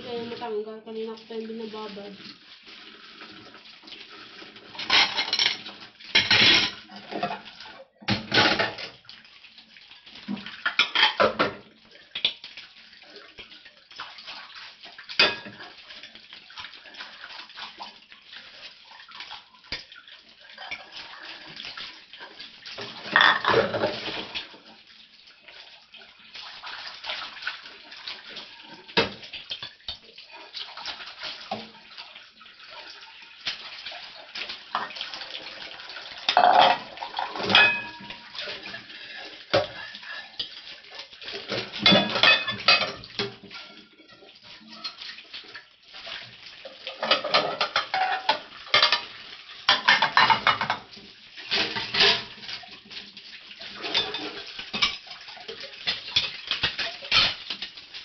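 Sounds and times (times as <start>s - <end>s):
running tap: 0.0s - 58.0s
dishes clinking in a sink: 4.7s - 9.0s, 10.2s - 12.4s, 15.2s - 15.8s, 22.8s - 24.7s, 34.7s - 35.1s, 36.2s - 38.9s, 39.5s - 40.6s, 41.4s - 45.2s, 46.9s - 52.7s, 53.7s - 57.5s.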